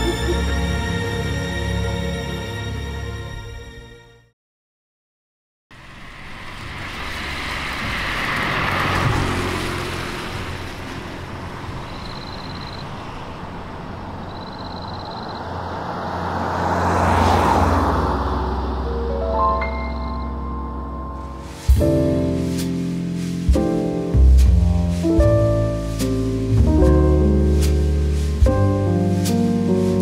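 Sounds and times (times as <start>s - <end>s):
cars passing: 5.7s - 25.0s.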